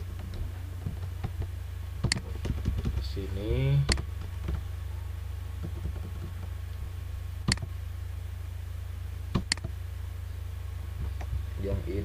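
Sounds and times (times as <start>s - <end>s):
low electrical hum: 0.0s - 12.0s
computer mouse click: 9.4s - 9.7s.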